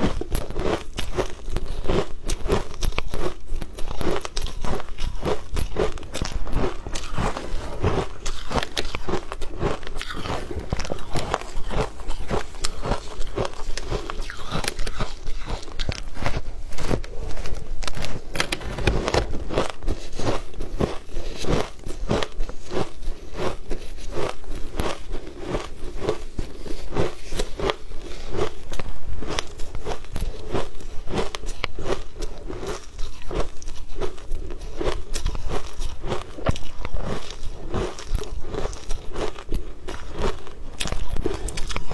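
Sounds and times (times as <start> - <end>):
shaved ice crunching while chewed: 0.0 - 41.9.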